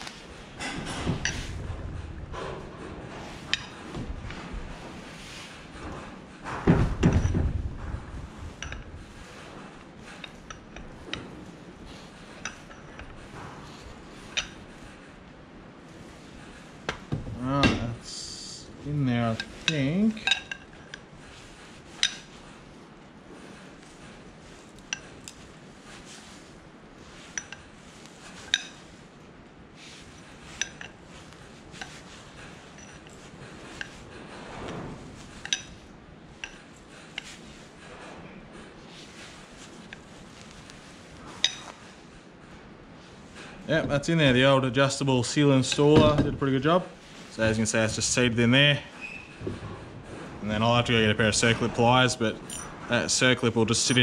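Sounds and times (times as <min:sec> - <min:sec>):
metal scrape: 0:00.0 - 0:06.6
metal tools clinking: 0:19.2 - 0:21.0, 0:29.9 - 0:34.0, 0:52.4 - 0:54.0.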